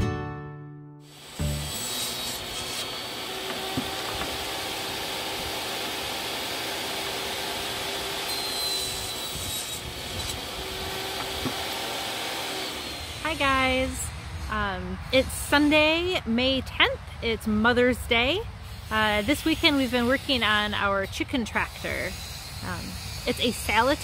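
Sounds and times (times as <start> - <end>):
table saw cutting wood: 1.0 - 13.6, 21.7 - 24.0
motor whine: 1.1 - 13.3.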